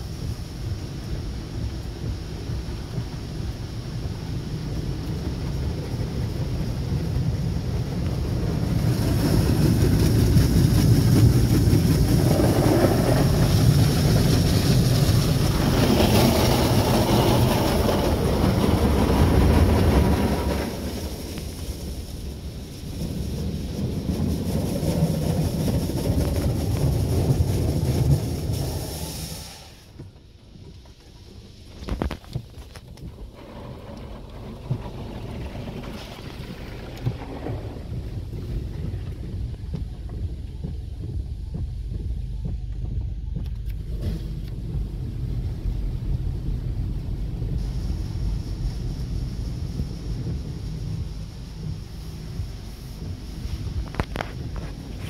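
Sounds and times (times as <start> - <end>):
quiet rumble: 0.0 - 55.0
water jets drumming on car: 0.0 - 55.0
spray hiss on glass: 28.0 - 29.9.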